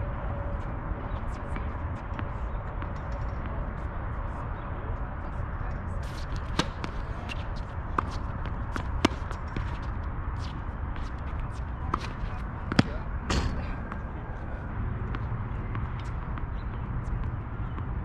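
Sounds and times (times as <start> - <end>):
steady low background noise: 0.0 - 18.0
tennis balls struck by rackets: 6.0 - 14.2.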